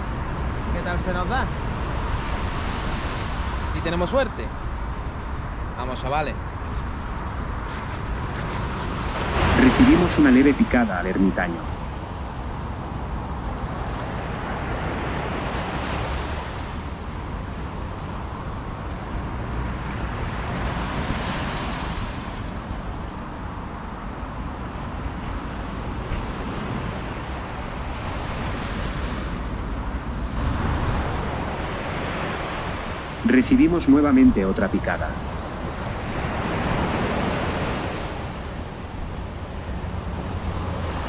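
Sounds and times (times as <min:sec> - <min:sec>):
wind buffeting microphone: 0:04.4 - 0:33.8
surf breaking on beach: 0:06.7 - 0:11.2, 0:30.1 - 0:41.0.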